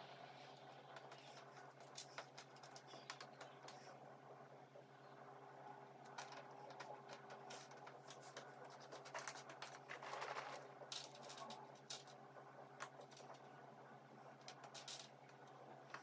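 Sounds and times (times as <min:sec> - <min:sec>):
puzzle pieces clicking and rustling: 0:14.5 - 0:15.1.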